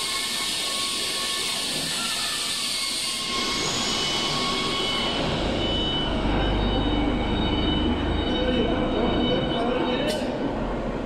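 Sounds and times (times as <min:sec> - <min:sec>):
welding machine hissing: 0:00.0 - 0:05.6.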